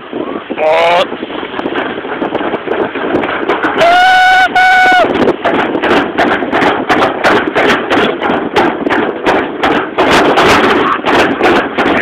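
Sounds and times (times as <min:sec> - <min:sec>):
sled rattling down track: 0:00.0 - 0:12.0.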